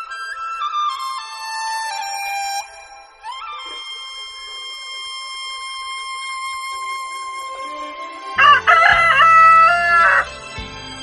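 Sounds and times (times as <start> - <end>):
background music with held note: 0.0 - 11.0
rooster crowing: 8.4 - 10.3.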